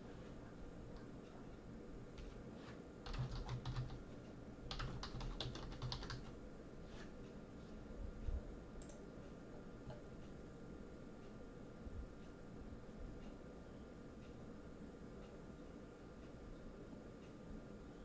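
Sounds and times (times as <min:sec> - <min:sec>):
keyboard typing: 0:03.0 - 0:04.0, 0:04.7 - 0:06.3.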